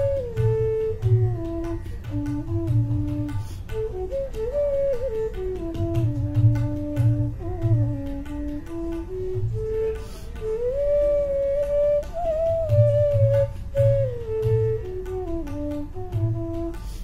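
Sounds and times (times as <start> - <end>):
bamboo flute melody: 0.0 - 17.0
tabla drumming: 0.0 - 17.0.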